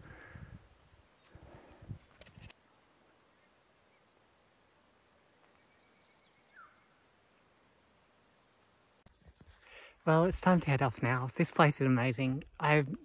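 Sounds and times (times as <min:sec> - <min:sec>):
steady high hiss: 0:00.0 - 0:12.8
faint bird chirps: 0:02.6 - 0:09.6.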